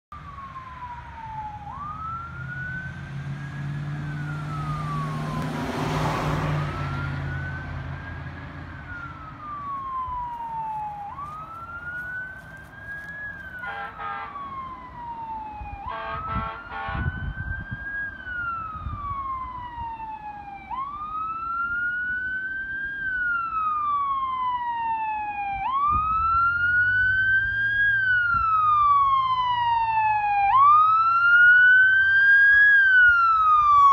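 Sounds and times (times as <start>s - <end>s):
ambulance siren wailing: 0.1s - 33.9s
car passing: 0.2s - 16.9s
short horn blasts: 13.6s - 14.4s, 15.9s - 17.1s.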